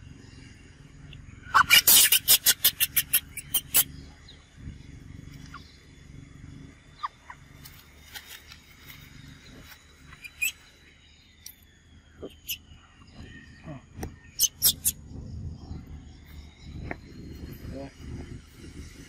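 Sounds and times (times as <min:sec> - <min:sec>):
macaque harsh calls: 0:01.4 - 0:03.9, 0:06.9 - 0:07.5, 0:10.1 - 0:10.7, 0:12.2 - 0:12.7, 0:14.4 - 0:15.0
baby macaques squeaking: 0:01.5 - 0:03.9, 0:05.4 - 0:05.7, 0:07.0 - 0:08.1, 0:09.6 - 0:10.7, 0:12.2 - 0:12.7, 0:14.4 - 0:15.0.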